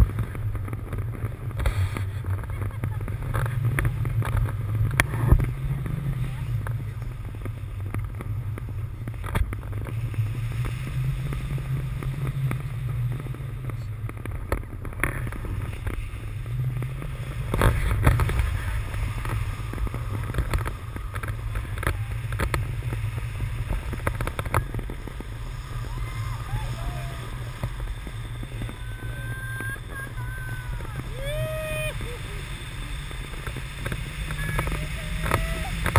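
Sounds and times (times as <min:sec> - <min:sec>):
wind buffeting microphone: 0:00.0 - 0:35.9.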